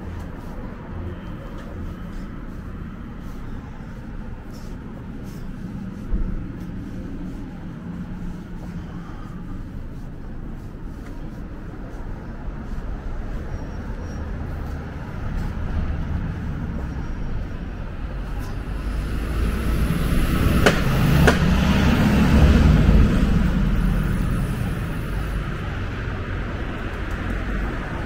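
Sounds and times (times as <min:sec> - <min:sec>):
road traffic: 0:00.0 - 0:28.0
vehicle passing close: 0:11.4 - 0:28.0.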